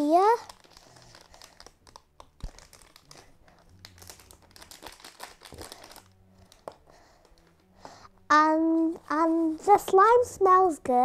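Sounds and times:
plastic packet crinkling: 0:00.0 - 0:07.4
small crackles: 0:00.0 - 0:07.8.

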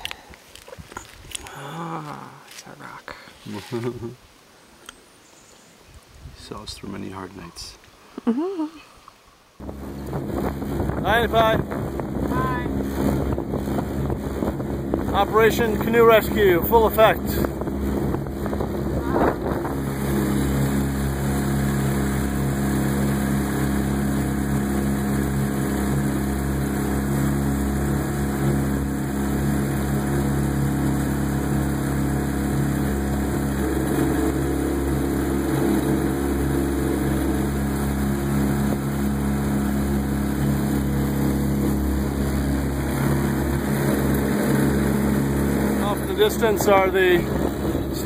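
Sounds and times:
outboard motor running: 0:09.6 - 0:48.0
rush of boat wake: 0:09.6 - 0:48.0.

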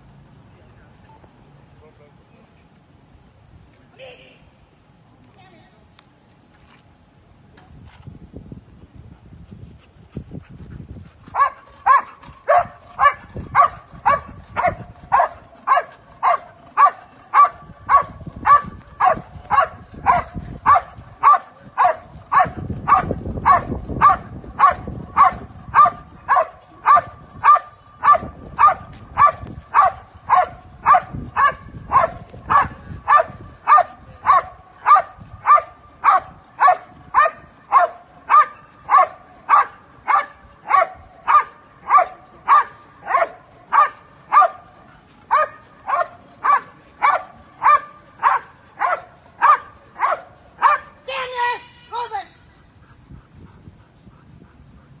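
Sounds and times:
dog barking rhythmically: 0:11.3 - 0:44.6, 0:45.3 - 0:51.0.

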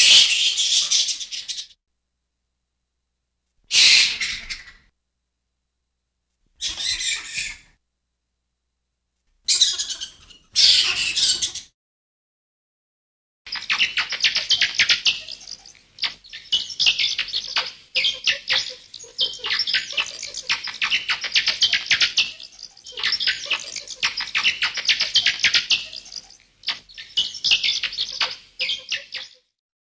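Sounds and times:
bats squeaking and chittering: 0:00.0 - 0:01.8, 0:06.6 - 0:07.6, 0:09.5 - 0:11.7, 0:13.5 - 0:29.5.

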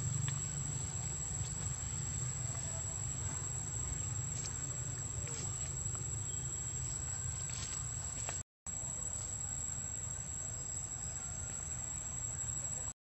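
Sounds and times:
low steady rumble: 0:00.0 - 0:08.3.

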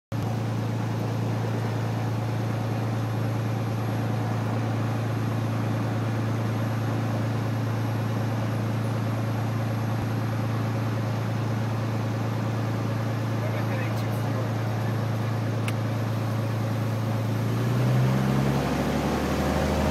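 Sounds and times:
airplane engine and propeller drone: 0:00.1 - 0:19.9.

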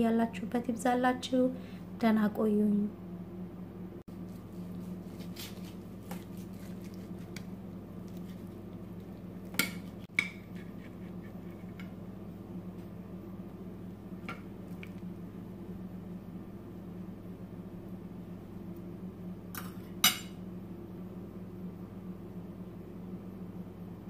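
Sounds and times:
steady low hum: 0:00.0 - 0:24.0
knife and fork scraping plate: 0:09.6 - 0:11.9.

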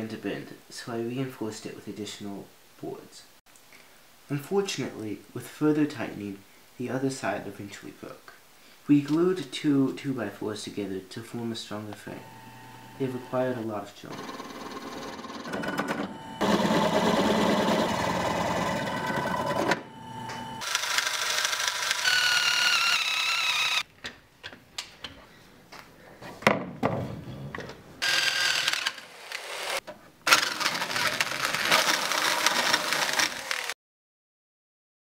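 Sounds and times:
electric drill boring into wood: 0:16.4 - 0:19.8, 0:20.6 - 0:23.8, 0:28.0 - 0:33.8.

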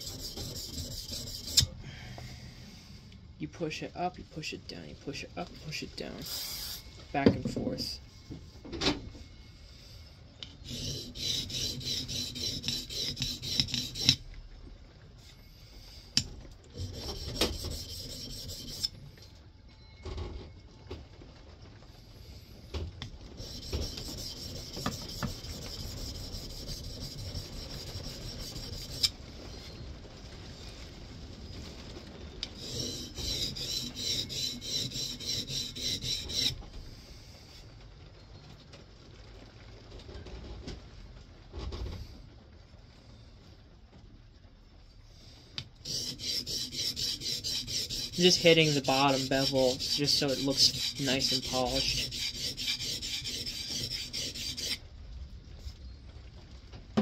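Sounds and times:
plane iron rasping on oilstone: 0:00.0 - 0:01.8, 0:10.5 - 0:14.2, 0:16.2 - 0:19.0, 0:23.4 - 0:29.1, 0:32.6 - 0:36.6, 0:45.8 - 0:54.8
steel scraping on stone: 0:00.0 - 0:01.8, 0:05.7 - 0:07.0, 0:09.7 - 0:14.3, 0:15.2 - 0:19.0, 0:23.4 - 0:29.8, 0:32.6 - 0:36.6, 0:45.8 - 0:54.8.

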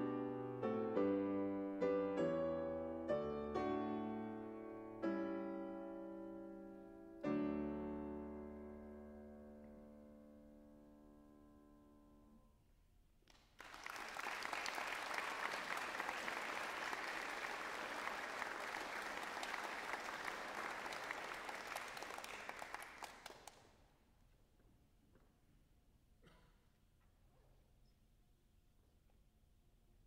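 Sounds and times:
audience applause: 0:13.3 - 0:23.6.

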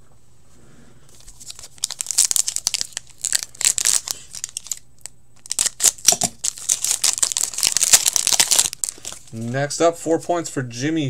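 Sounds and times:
foil wrapper crinkling and tearing: 0:01.1 - 0:09.5.

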